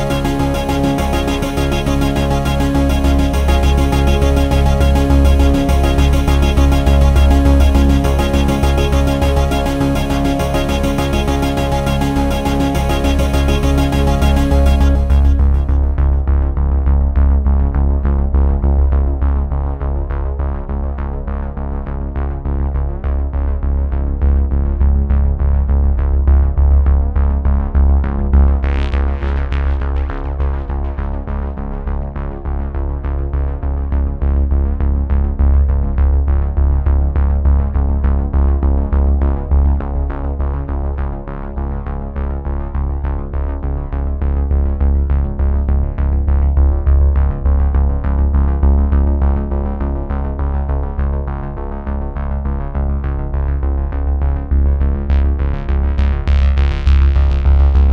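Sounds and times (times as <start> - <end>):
synthesizer music with steady beat: 0.0 - 18.4, 54.4 - 57.9.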